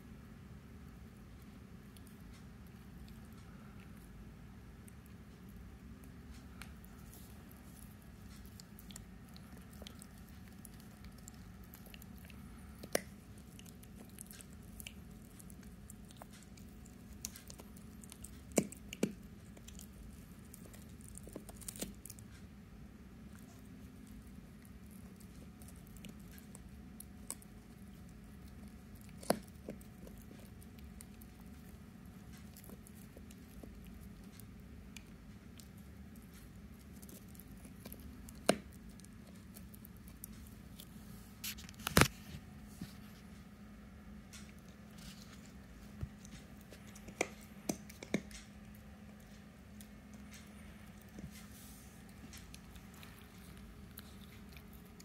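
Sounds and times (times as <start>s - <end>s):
low steady hum: 0.0s - 55.0s
puppy chewing: 0.9s - 55.0s
teeth clicking on chew stick: 4.8s - 22.5s, 23.3s - 40.8s, 46.2s - 51.2s.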